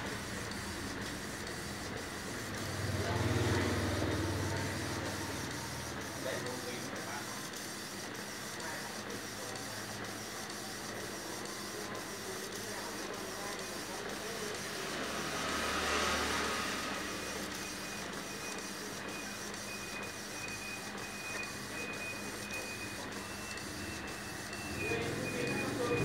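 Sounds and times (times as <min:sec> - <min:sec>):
printer whirring: 0:00.0 - 0:26.0.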